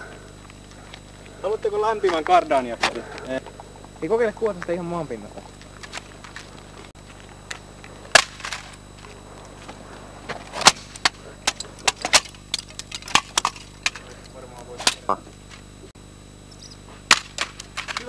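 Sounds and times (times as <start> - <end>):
plastic toy car cracking on asphalt: 11.9 - 14.0, 17.1 - 18.0.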